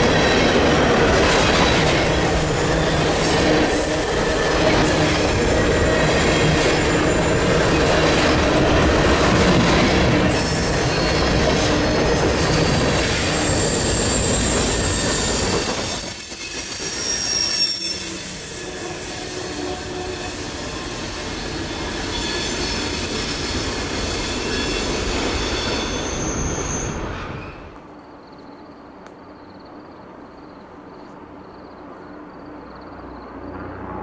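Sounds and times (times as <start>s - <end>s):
train wheels squealing: 0.0s - 8.5s, 10.3s - 27.8s
rumble of rail cars: 0.0s - 34.0s.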